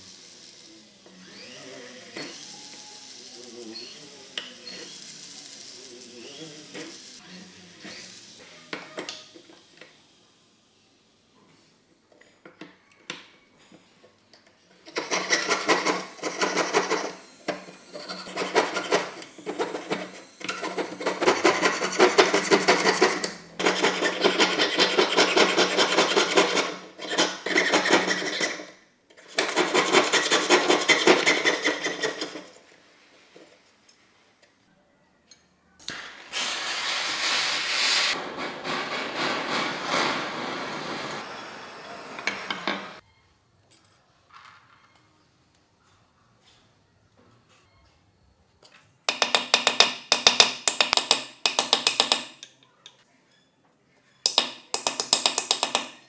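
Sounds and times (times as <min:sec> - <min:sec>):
saw cutting metal plate: 0:14.9 - 0:28.7, 0:29.3 - 0:32.5, 0:36.3 - 0:43.0
hissy scraping: 0:36.0 - 0:43.0.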